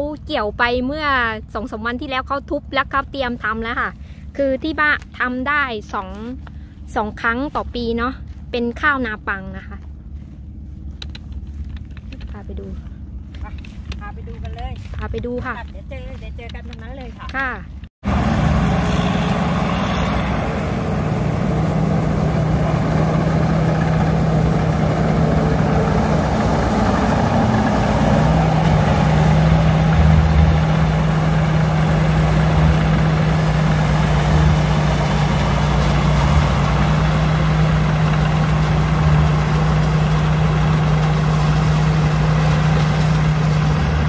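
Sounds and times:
combine harvester diesel engine: 0:00.0 - 0:44.0
high machinery whine: 0:18.0 - 0:44.0.

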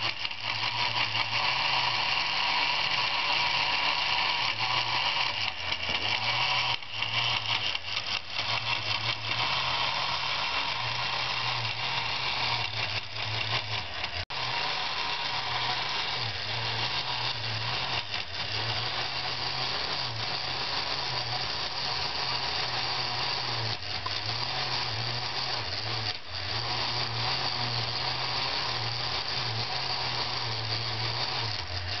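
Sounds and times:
electric motor and gears whirring: 0:00.0 - 0:32.0.

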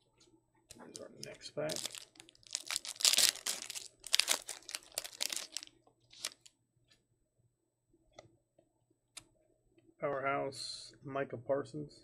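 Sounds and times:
foil wrapper crinkling and tearing: 0:01.0 - 0:06.5.

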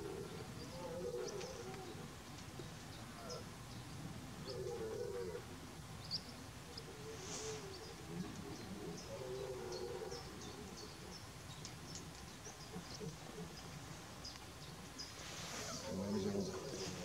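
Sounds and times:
low wavering cooing call: 0:00.0 - 0:02.1, 0:04.4 - 0:05.5
small birds chirping: 0:06.0 - 0:17.0.

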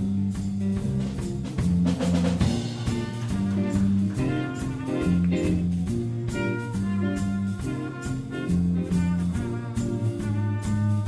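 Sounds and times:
bass notes: 0:00.0 - 0:11.0
drum kit with cymbal strikes: 0:00.0 - 0:11.0
saxophones and brass: 0:02.4 - 0:11.0.

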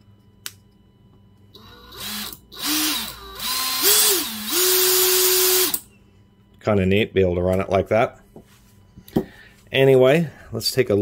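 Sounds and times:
electric motor whine: 0:01.6 - 0:05.8.

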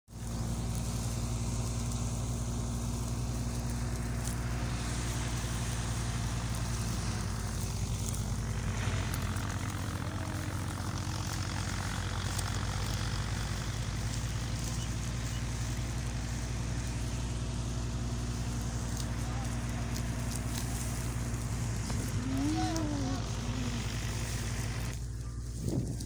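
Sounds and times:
rushing hiss: 0:00.1 - 0:25.0
tractor diesel engine running: 0:00.1 - 0:26.0.

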